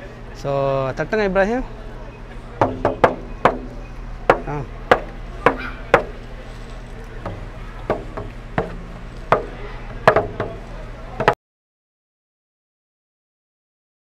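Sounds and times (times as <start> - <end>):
fingers tapping frame drum: 2.6 - 6.2, 7.2 - 11.4.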